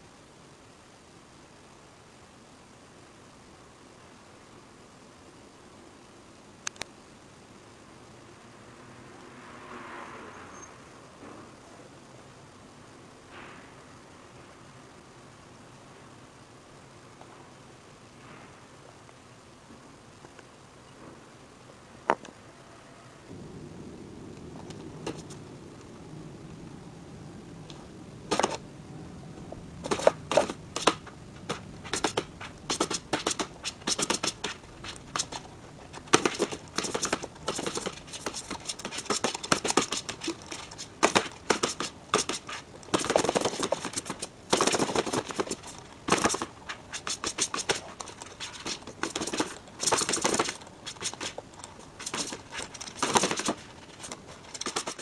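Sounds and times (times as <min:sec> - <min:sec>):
cat scratching paper: 0:25.1 - 0:25.4, 0:29.8 - 0:55.0
stick drawn across paper: 0:29.9 - 0:35.4, 0:36.0 - 0:44.3, 0:45.2 - 0:51.4.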